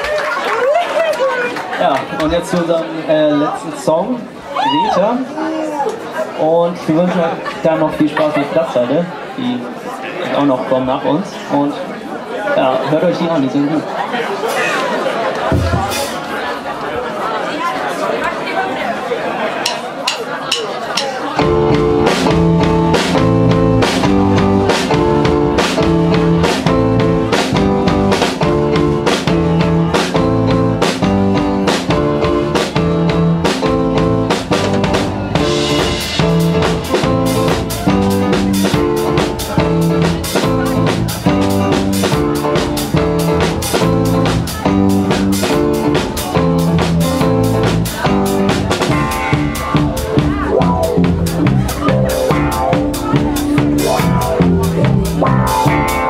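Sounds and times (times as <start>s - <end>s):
bass guitar: 15.5s - 16.2s, 21.3s - 56.0s
drum kit beat: 15.5s - 16.3s, 19.6s - 56.0s
sustained chords: 48.9s - 56.0s.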